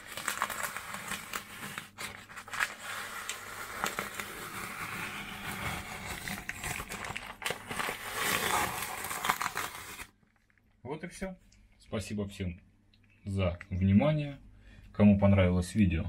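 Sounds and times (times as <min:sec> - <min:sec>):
paper and tape crinkling and tearing: 0:00.0 - 0:10.6.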